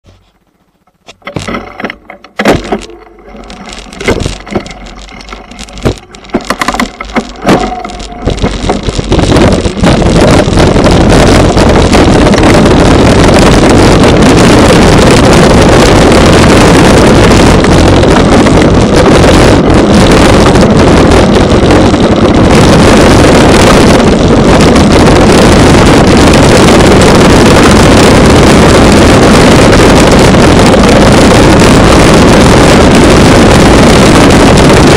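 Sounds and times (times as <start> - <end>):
bike rattling: 0.0 - 27.0
wind noise: 0.0 - 34.9
bike knocks and clicks: 0.8 - 9.8.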